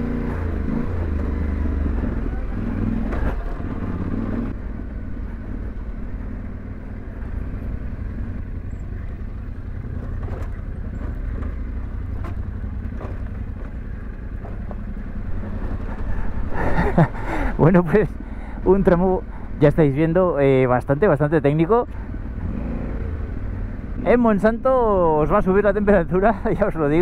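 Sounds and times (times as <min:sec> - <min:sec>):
motorcycle engine at low revs: 0:00.0 - 0:27.0
bike knocking and rattling: 0:09.7 - 0:16.1.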